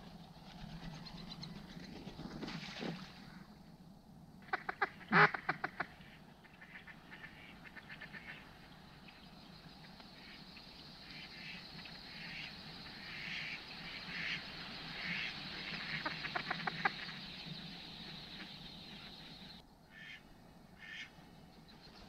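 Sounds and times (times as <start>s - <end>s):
ducks quacking: 4.4s - 8.6s, 11.0s - 20.2s, 20.8s - 21.1s.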